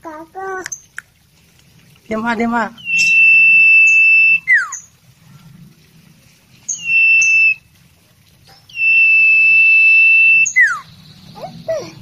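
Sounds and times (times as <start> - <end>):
bird whistling: 2.8 - 5.0, 6.7 - 7.7, 8.6 - 12.0.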